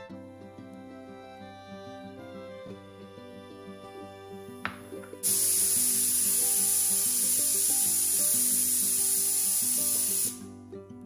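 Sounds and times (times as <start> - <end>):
soft background music: 0.0 - 11.0
pressure cooker steam hiss: 5.2 - 10.5.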